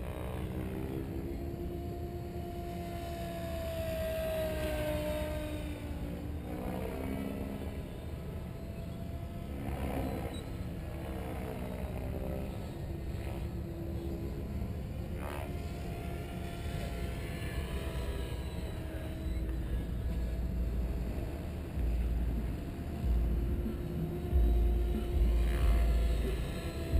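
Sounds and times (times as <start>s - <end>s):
rc helicopter rotor whine: 0.0s - 26.9s
heavy low rumble: 17.5s - 26.9s.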